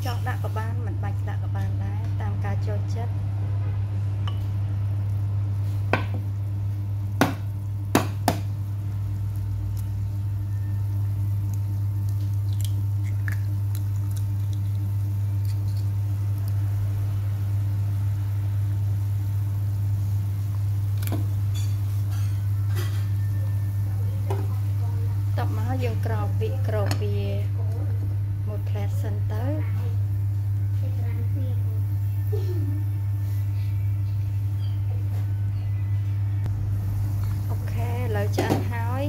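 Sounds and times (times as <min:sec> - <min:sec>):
low hum: 0:00.0 - 0:39.0
soup bubbling: 0:08.5 - 0:22.0.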